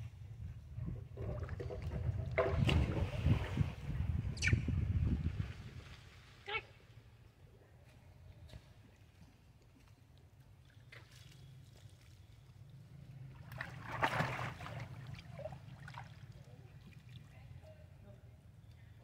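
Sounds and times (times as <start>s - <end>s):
water splashing and sloshing: 0.8s - 4.2s, 5.1s - 7.2s, 9.7s - 17.7s.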